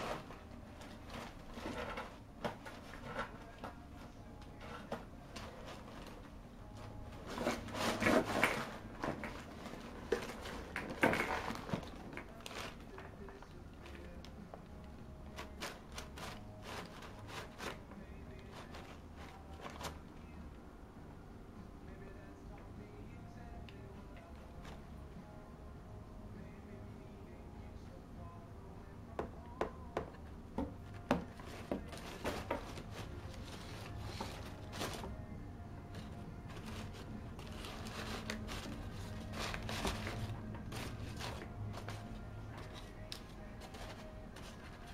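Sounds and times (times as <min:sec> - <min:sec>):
wrapping paper rustling and crinkling: 0:07.2 - 0:14.1, 0:15.3 - 0:20.0, 0:31.4 - 0:35.2, 0:35.9 - 0:42.0, 0:42.6 - 0:44.9.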